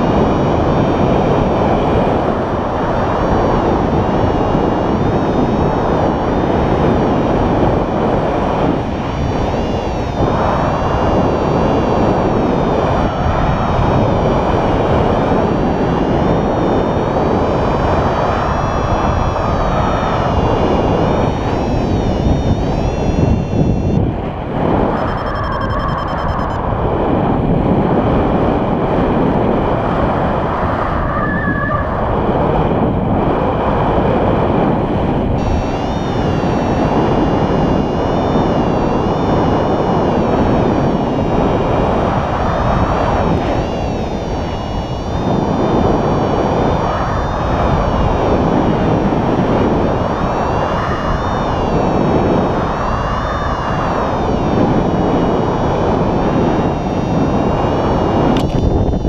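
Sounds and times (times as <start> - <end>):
wind buffeting microphone: 0.0 - 59.0
faint wavering whistle: 15.5 - 24.0, 24.9 - 26.6, 52.5 - 58.4
faint high tone: 24.9 - 26.6.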